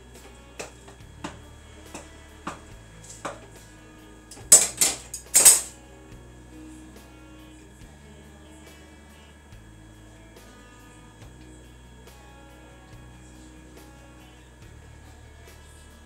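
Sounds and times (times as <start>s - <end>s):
wooden spoon knocking metal pot: 0.6s - 3.5s.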